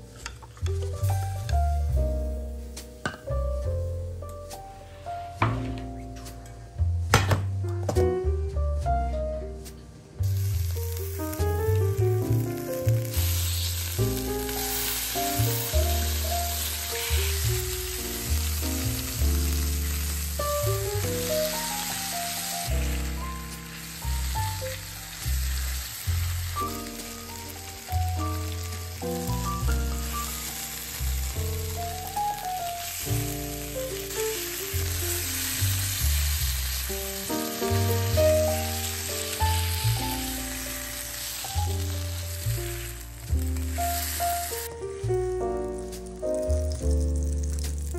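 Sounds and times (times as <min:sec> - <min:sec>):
background music with bass line: 0:00.0 - 0:47.9
meat sizzling in a frying pan: 0:10.2 - 0:47.9.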